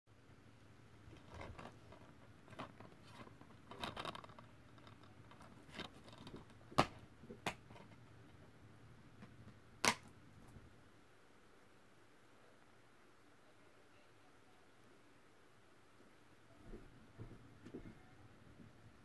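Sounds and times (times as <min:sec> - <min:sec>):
plastic case rustling: 0:01.1 - 0:06.8.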